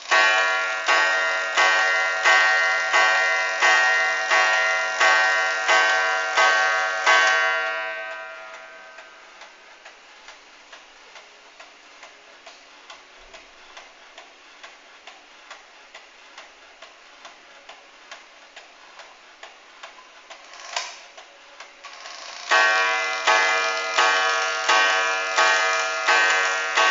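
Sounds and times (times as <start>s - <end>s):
clock gong strike: 0.0s - 9.4s, 22.5s - 26.9s
clock ticking: 0.0s - 26.9s.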